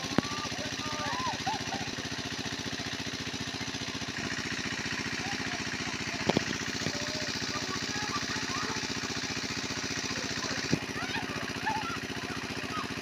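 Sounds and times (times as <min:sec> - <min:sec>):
small engine running: 0:00.0 - 0:13.0.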